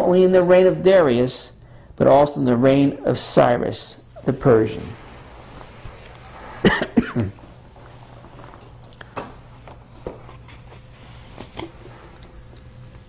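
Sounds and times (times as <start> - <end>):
man clearing throat: 6.6 - 7.4.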